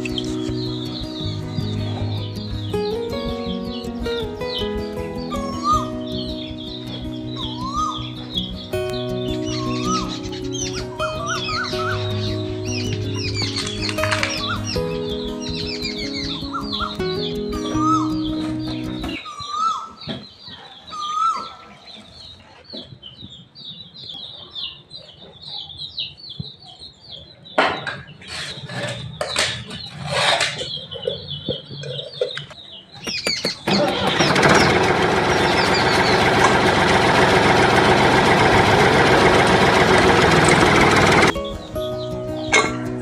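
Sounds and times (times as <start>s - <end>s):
small birds chirping: 0.0s - 43.0s
loud steady engine-like sound: 33.7s - 41.4s.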